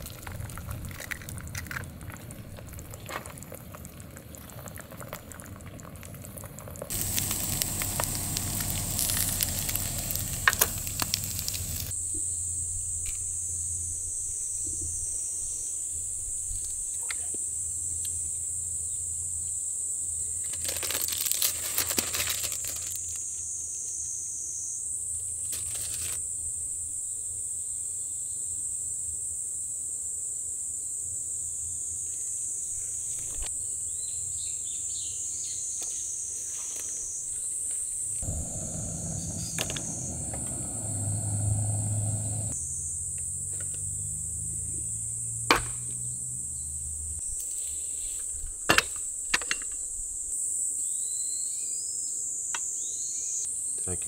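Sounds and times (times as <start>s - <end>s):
insects chirring: 6.9s - 16.9s, 31.2s - 45.4s
low hum: 7.0s - 11.9s, 38.2s - 42.6s.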